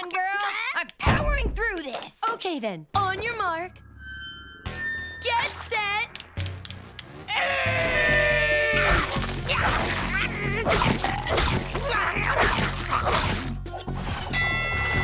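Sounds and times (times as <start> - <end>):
lively background music: 3.0 - 15.0
cartoon wet eating noises: 8.7 - 14.3.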